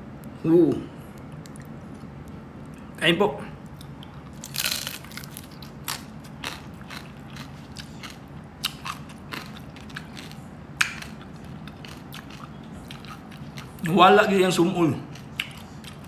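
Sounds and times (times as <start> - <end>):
chewing with crisp crackles: 1.0 - 2.9, 3.6 - 14.0, 15.0 - 16.0
crunching bite into crispy skin: 3.8 - 13.8.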